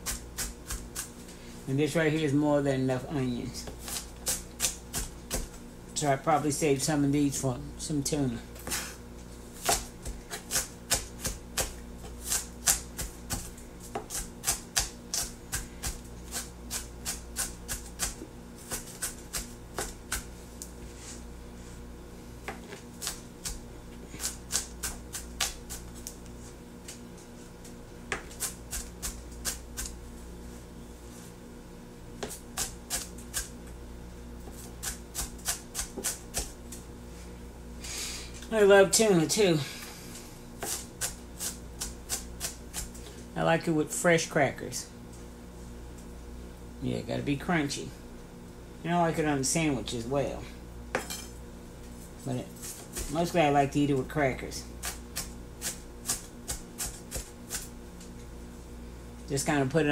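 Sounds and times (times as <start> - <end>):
knife chopping on cutting board: 9.6 - 20.3, 34.5 - 36.6, 40.6 - 42.9, 54.8 - 57.7.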